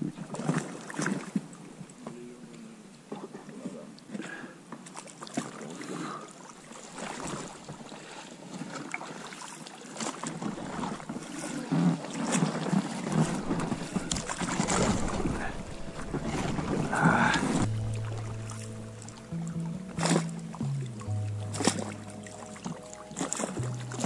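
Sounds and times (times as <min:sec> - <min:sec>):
water splashing around boat: 0:00.0 - 0:24.0
low rumble: 0:13.4 - 0:24.0.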